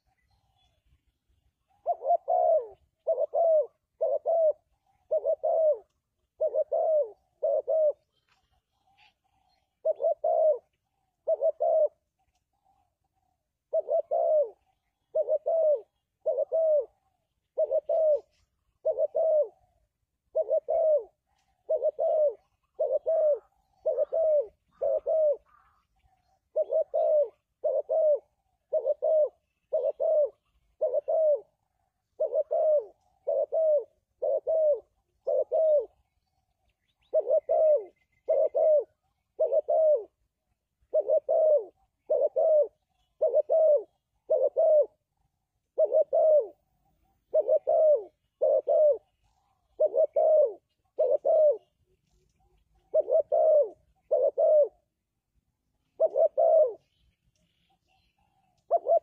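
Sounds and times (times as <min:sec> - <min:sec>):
dove cooing: 0:00.0 - 0:00.9, 0:01.6 - 0:57.1, 0:57.9 - 0:59.0.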